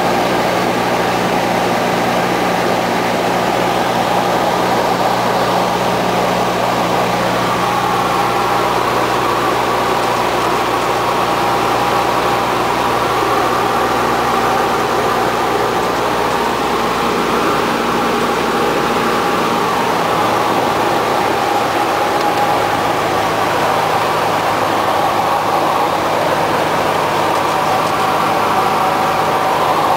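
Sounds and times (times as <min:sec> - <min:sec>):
light aircraft engine drone: 0:00.0 - 0:29.9.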